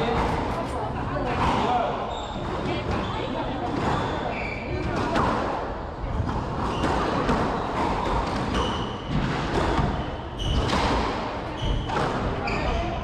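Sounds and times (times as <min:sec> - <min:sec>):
squash ball knocks: 0:04.8 - 0:12.5.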